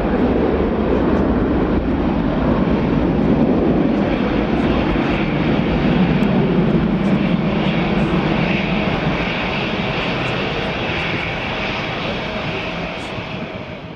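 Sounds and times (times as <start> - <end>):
jet engines running: 0.0 - 13.9.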